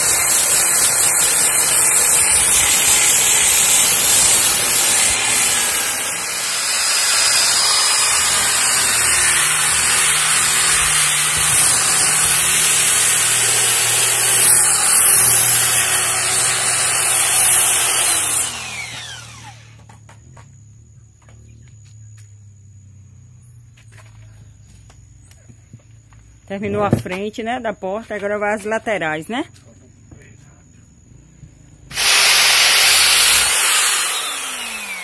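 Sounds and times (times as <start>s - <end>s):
grinder sanding sheet metal: 0.0s - 18.6s
motor spinning down whine: 31.9s - 35.0s.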